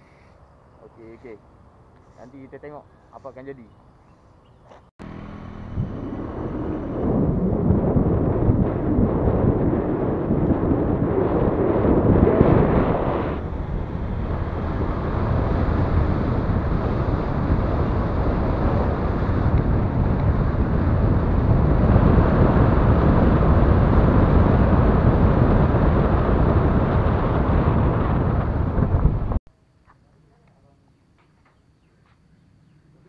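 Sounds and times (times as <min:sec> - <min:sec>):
vehicle running and road noise: 0:03.8 - 0:29.4
wind rushing over microphone: 0:05.0 - 0:29.4.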